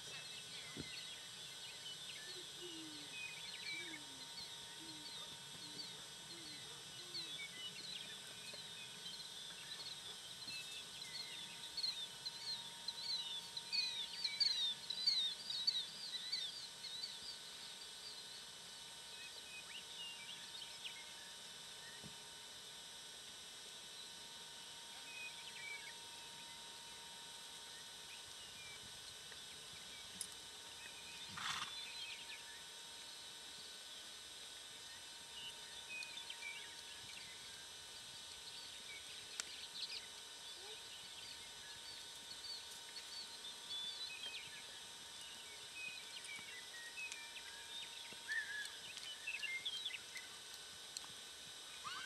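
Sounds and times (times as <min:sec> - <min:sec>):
horse snorting: 0:31.3 - 0:31.7.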